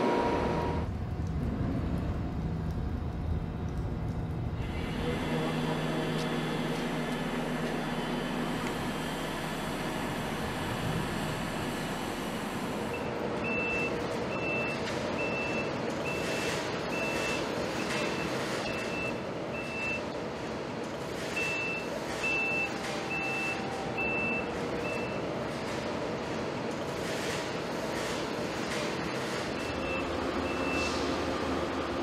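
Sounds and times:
industrial background noise: 0.0 - 32.0.

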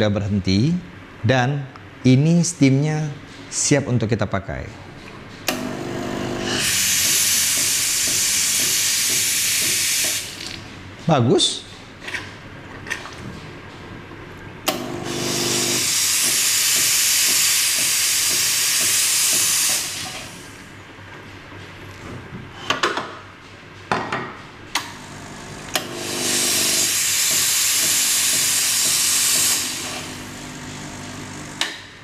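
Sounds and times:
steam hissing: 6.5 - 10.4, 15.1 - 20.6, 25.8 - 31.7.

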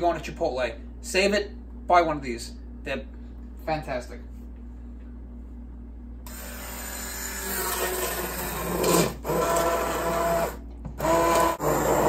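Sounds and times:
immersion blender whirring: 6.3 - 12.0.

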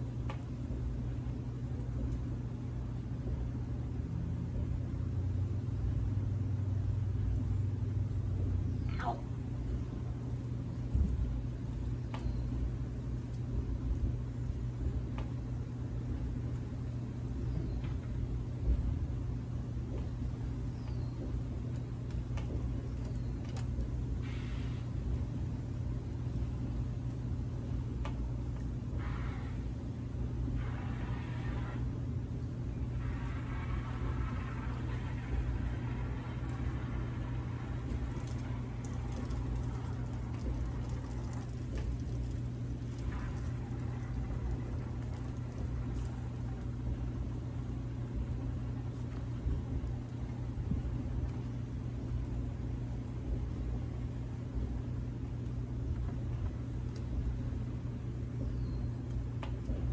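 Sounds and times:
steady low rumble: 0.0 - 59.9.

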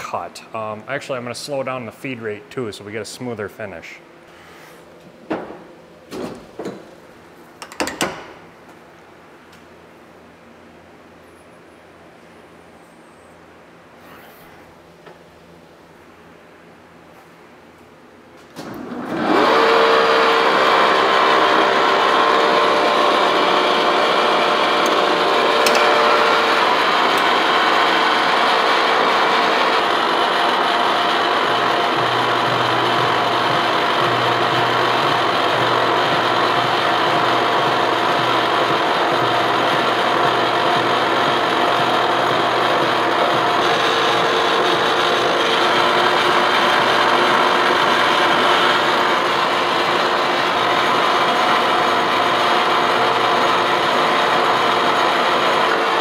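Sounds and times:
milling cutter cutting metal: 19.2 - 56.0.

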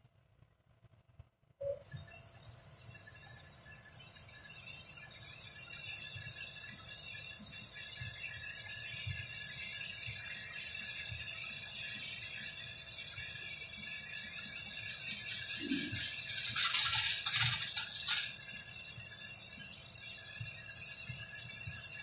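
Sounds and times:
distant combine harvester hiss: 13.1 - 22.0.

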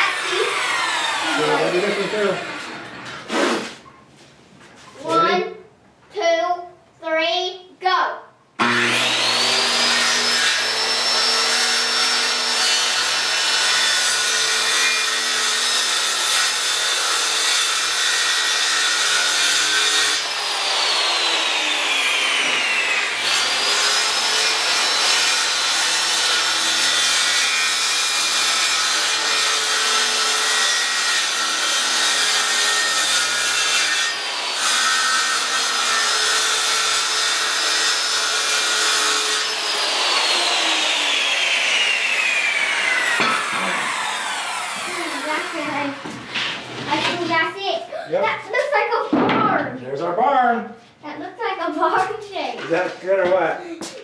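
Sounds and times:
circular saw cutting board: 0.0 - 3.8, 8.6 - 47.3.

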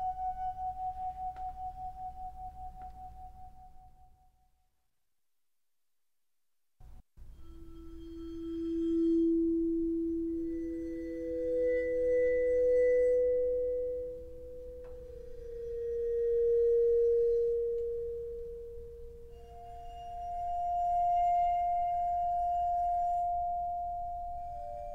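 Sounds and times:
bowed vibraphone tones: 7.3 - 24.9.

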